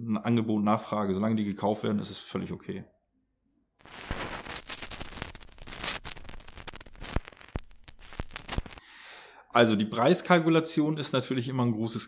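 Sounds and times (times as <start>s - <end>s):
vinyl record crackle: 3.8s - 8.8s
vinyl record pops: 3.8s - 8.8s.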